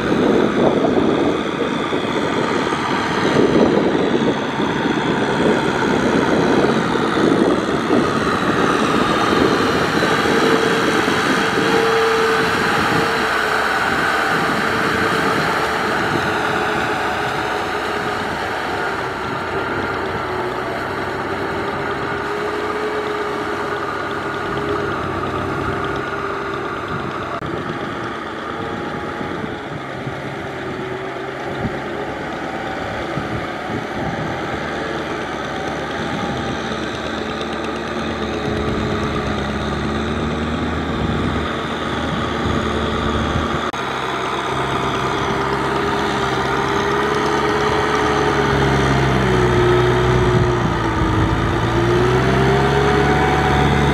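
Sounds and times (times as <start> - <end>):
tractor diesel engine under load: 0.0 - 53.9.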